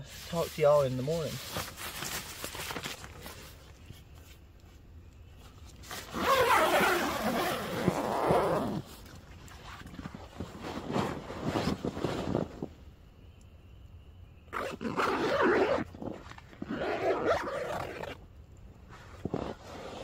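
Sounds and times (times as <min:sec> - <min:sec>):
tent fabric rustling: 0:00.0 - 0:12.8, 0:14.5 - 0:18.2, 0:18.9 - 0:20.0
zipper rasping: 0:05.9 - 0:09.0, 0:14.5 - 0:18.2, 0:18.9 - 0:20.0.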